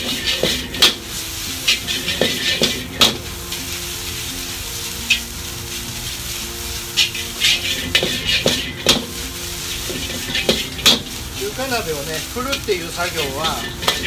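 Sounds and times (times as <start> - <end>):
metal ladle scraping wok: 0.0 - 14.0
rice sizzling in a wok: 0.0 - 14.0
ladle clicking against wok: 13.5 - 14.0.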